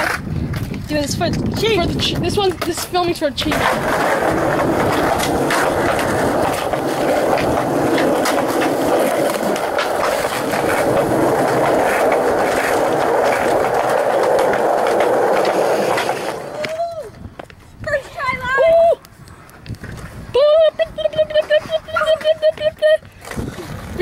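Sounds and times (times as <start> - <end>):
wheels clacking over pavement joints: 0.0 - 16.9
skateboard wheels rolling on concrete: 0.0 - 24.0.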